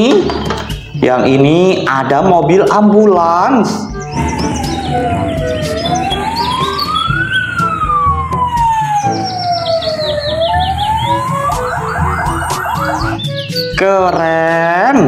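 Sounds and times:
ambulance siren wailing: 0:04.0 - 0:13.8.

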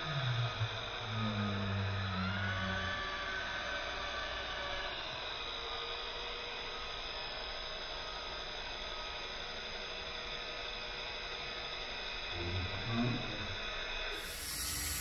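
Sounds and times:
toy helicopter rotors whirring: 0:14.1 - 0:15.0.

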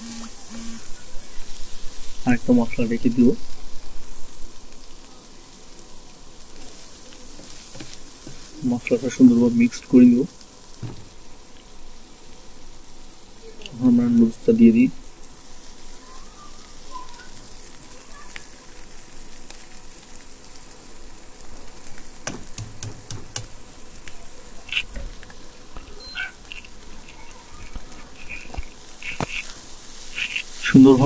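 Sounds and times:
noodles sizzling in a frying pan: 0:00.0 - 0:31.0
spatula knocking against pan: 0:22.2 - 0:23.7.

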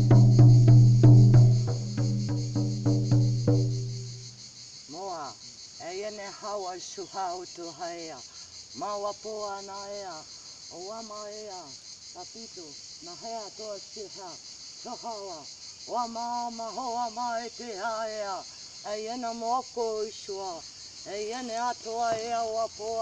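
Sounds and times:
frame drum struck with beater: 0:00.0 - 0:04.4
insects chirring: 0:00.0 - 0:23.0.

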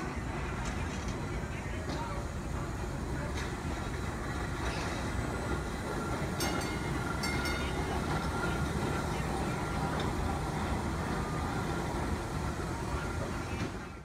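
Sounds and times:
streetcar clatters: 0:00.0 - 0:14.0
streetcar rumbling past: 0:00.0 - 0:14.0.

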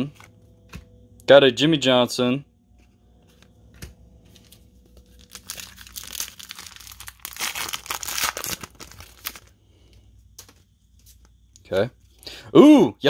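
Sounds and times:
wrapper tearing and crinkling: 0:04.4 - 0:09.5.

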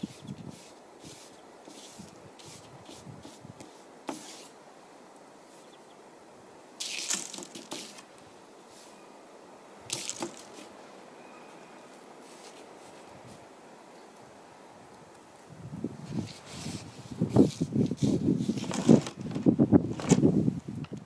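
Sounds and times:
paintbrush swishing on paper: 0:00.0 - 0:04.6, 0:06.8 - 0:08.1, 0:12.2 - 0:13.4, 0:16.0 - 0:18.8.

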